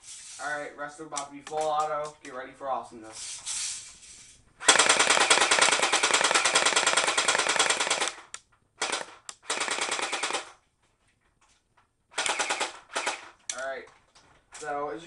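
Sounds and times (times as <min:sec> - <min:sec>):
airsoft rifle rapid fire: 0:04.6 - 0:10.6, 0:12.2 - 0:13.4.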